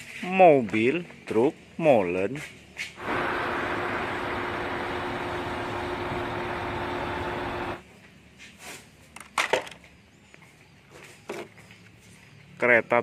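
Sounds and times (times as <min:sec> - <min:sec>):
concrete mixer truck engine: 0:03.0 - 0:07.8.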